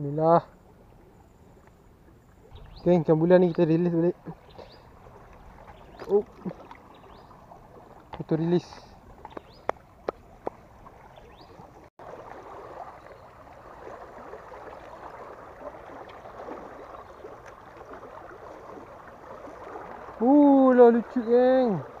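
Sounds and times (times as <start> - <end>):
water rushing through sluice gate: 12.0 - 22.0.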